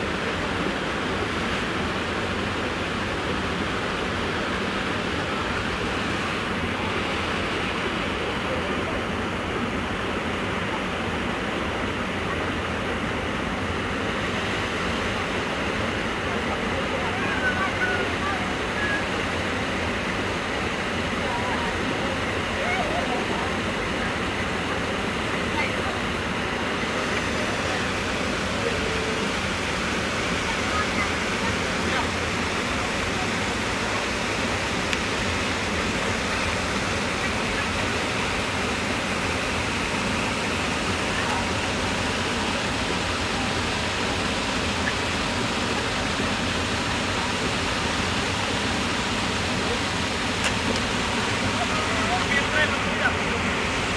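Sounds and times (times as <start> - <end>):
river water rushing: 0.0 - 53.9.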